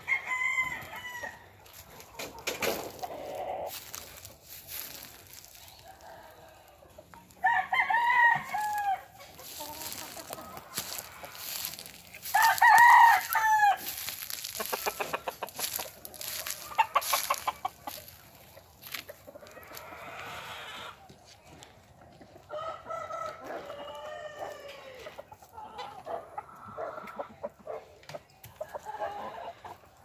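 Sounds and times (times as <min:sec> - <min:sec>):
roosters crowing: 0:00.0 - 0:01.8, 0:02.7 - 0:18.2, 0:22.4 - 0:26.2.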